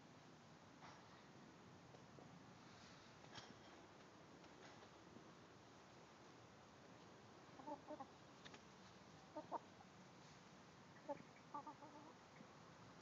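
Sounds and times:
hens clucking quietly: 0:07.4 - 0:13.0.

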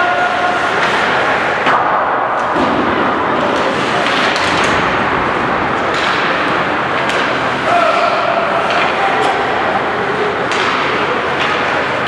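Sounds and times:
ice rink din: 0:00.0 - 0:12.0
puck and sticks hitting boards: 0:00.0 - 0:12.0.

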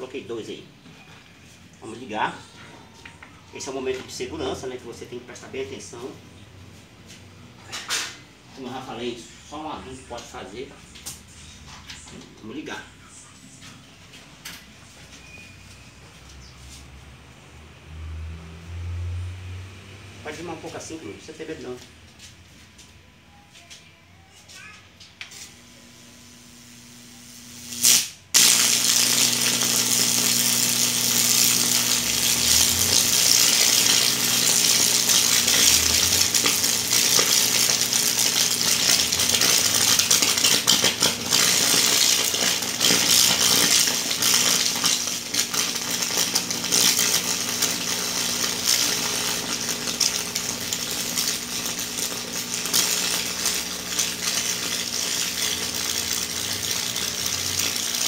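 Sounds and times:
steady electric hum: 0:16.4 - 0:58.0
electric arc crackling: 0:25.6 - 0:58.0.

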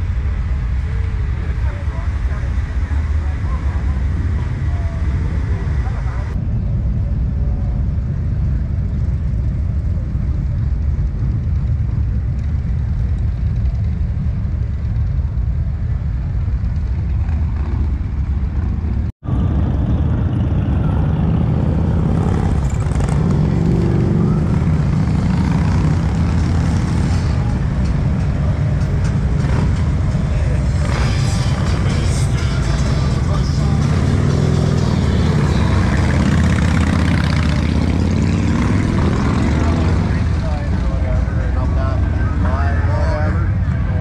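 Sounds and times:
motorcycle engines rumbling: 0:00.0 - 0:44.0
motorcycles riding past: 0:16.6 - 0:44.0.

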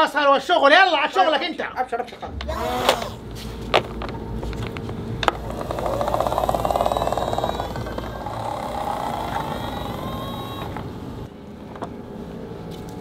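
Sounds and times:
toy motor whirring: 0:05.3 - 0:11.2.

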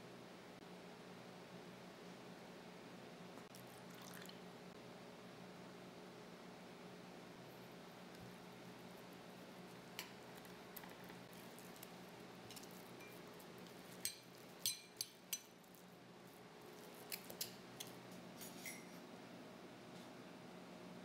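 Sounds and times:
spoon clinking ceramic bowl: 0:12.5 - 0:13.2, 0:14.0 - 0:15.6.

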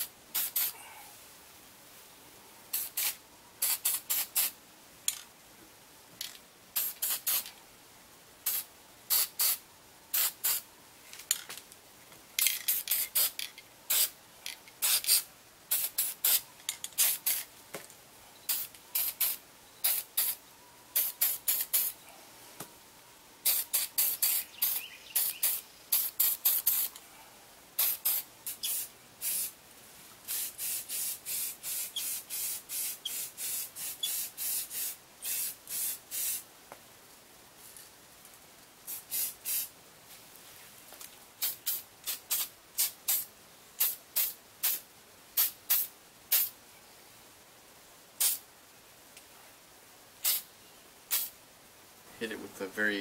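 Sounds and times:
spray paint can hissing: 0:00.0 - 0:00.8, 0:02.7 - 0:04.6, 0:06.2 - 0:07.5, 0:08.4 - 0:10.6, 0:12.4 - 0:14.2, 0:14.8 - 0:17.5, 0:18.5 - 0:20.4, 0:21.0 - 0:22.0, 0:23.4 - 0:27.0, 0:27.8 - 0:29.6, 0:30.3 - 0:36.4, 0:38.9 - 0:39.7, 0:41.4 - 0:44.8, 0:45.4 - 0:46.5, 0:48.2 - 0:48.4, 0:50.2 - 0:50.5, 0:51.1 - 0:51.4.

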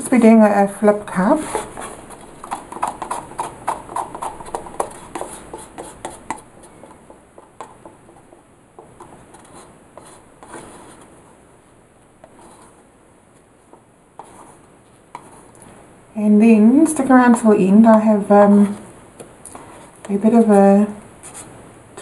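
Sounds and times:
paper cups tapping and scraping: 0:01.1 - 0:11.1, 0:13.7 - 0:15.6.

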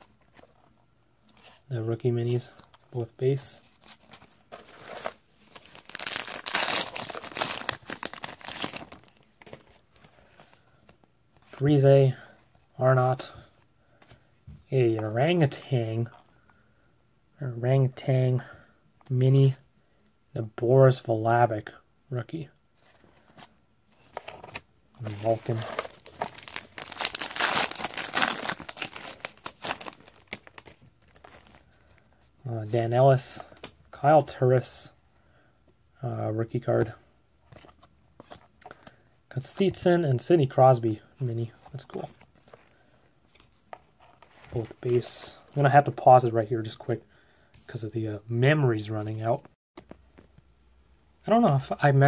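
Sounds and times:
paper wrapper tearing and crinkling: 0:04.6 - 0:09.6, 0:24.3 - 0:31.6.

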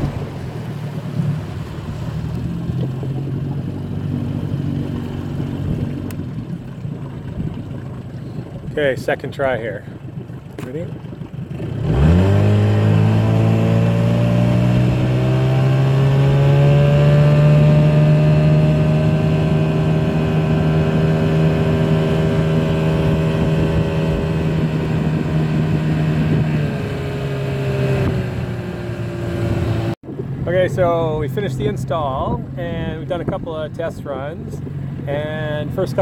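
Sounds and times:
outboard motor revving: 0:00.0 - 0:36.0.

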